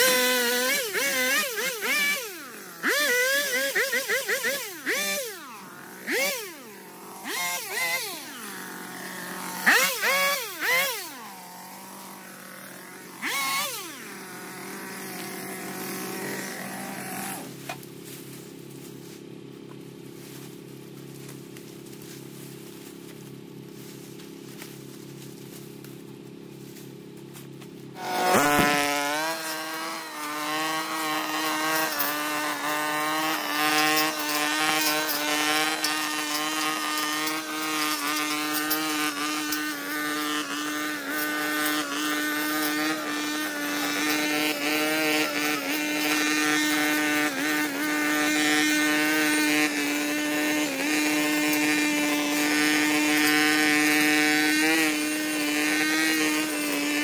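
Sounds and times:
brush cutter engine cutting grass: 0:00.0 - 0:57.0.

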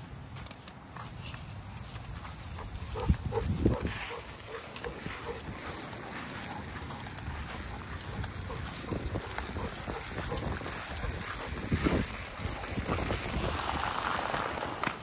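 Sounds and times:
wind rumble on microphone: 0:02.2 - 0:06.0, 0:07.2 - 0:14.6
dog panting hard: 0:02.6 - 0:13.4.

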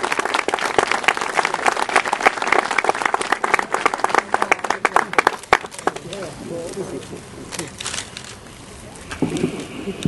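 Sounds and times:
crowd applauding: 0:00.0 - 0:06.2.

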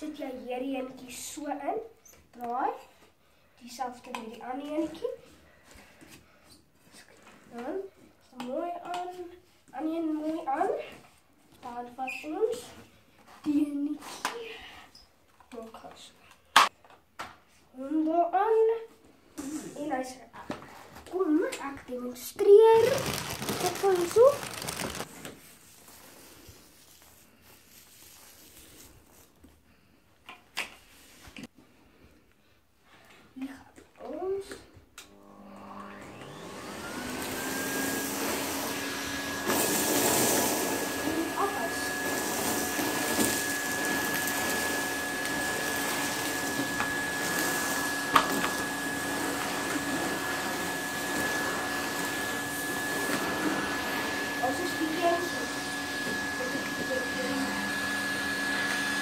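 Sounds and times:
vacuum cleaner whine: 0:35.0 - 0:59.0.

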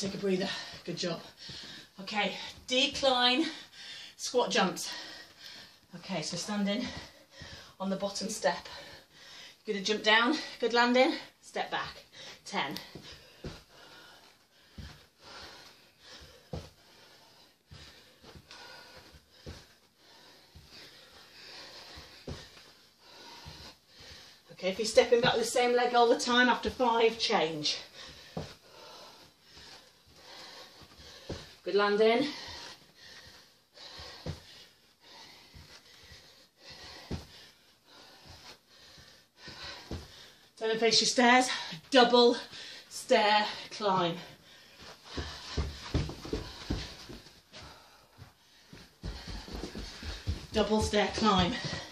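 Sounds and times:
heavy breathing: 0:00.0 - 0:40.6, 0:41.3 - 0:51.9
feet thudding on carpet: 0:12.8 - 0:14.0, 0:21.6 - 0:23.7, 0:36.8 - 0:37.5, 0:44.8 - 0:51.9.

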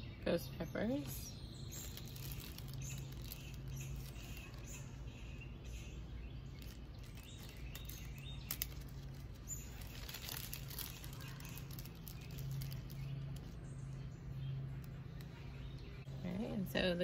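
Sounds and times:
steady low hum: 0:00.0 - 0:17.0
plastic bag crinkling: 0:00.9 - 0:15.8
sharp plastic crackle: 0:00.9 - 0:16.1.

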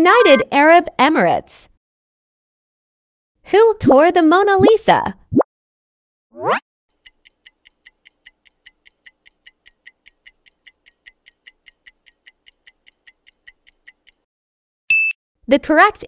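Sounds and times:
countdown timer ticking: 0:00.0 - 0:00.4.

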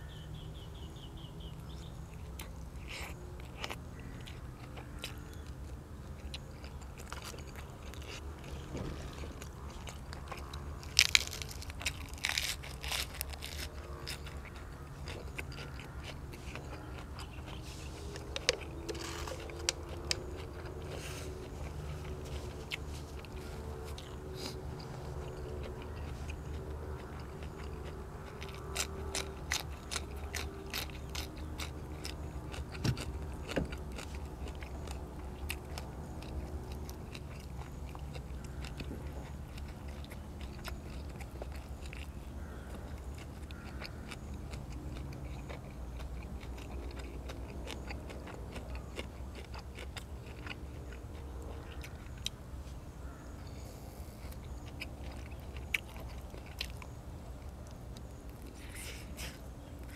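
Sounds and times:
person chewing and biting food: 0:01.8 - 0:52.4, 0:53.7 - 0:59.9
crisp crunches: 0:06.7 - 0:24.6.

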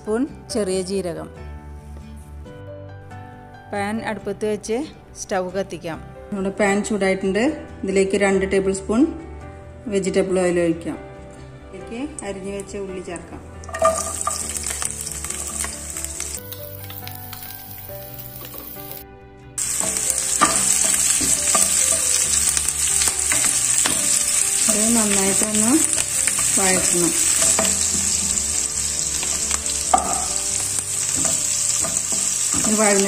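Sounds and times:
onions sizzling in oil: 0:13.6 - 0:19.0, 0:19.6 - 0:33.0.

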